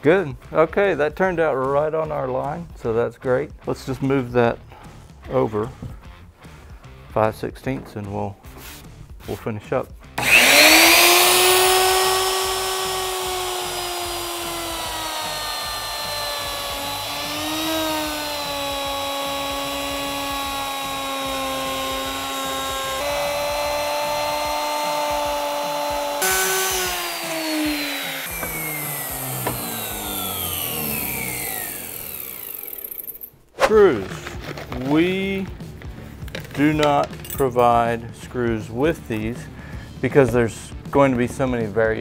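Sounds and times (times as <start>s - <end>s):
router cutting wood: 10.2s - 33.3s.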